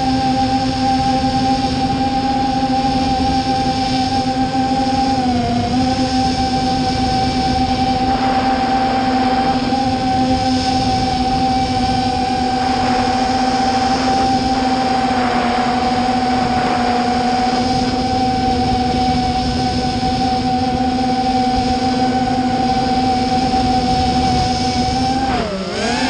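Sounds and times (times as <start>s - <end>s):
drone motors and propellers whining: 0.0s - 26.0s.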